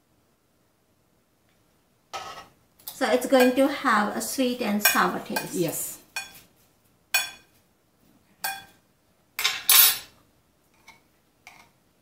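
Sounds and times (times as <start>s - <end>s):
metal spoon clinking on ceramic: 4.8s - 5.6s, 7.2s - 7.5s, 8.4s - 8.8s
spoon clattering in bowl: 8.4s - 8.8s.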